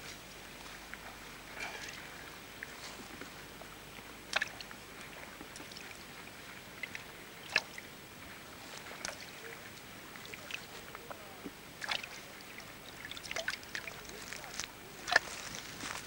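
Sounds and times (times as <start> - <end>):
water sloshing and dripping: 4.3 - 6.0, 6.8 - 7.8, 8.6 - 16.0.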